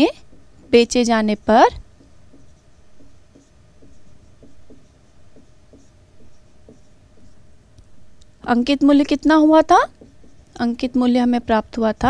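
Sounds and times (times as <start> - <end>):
marker squeaking on whiteboard: 0.2 - 7.6, 9.7 - 10.7.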